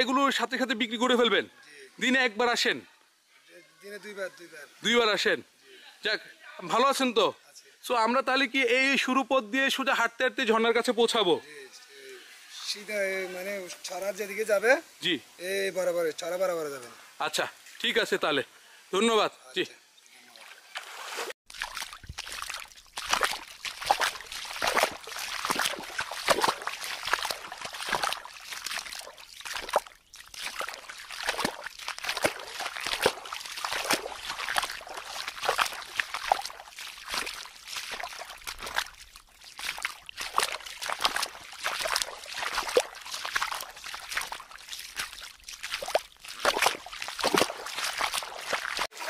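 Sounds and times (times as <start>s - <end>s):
feet wading through water: 20.2s - 49.0s.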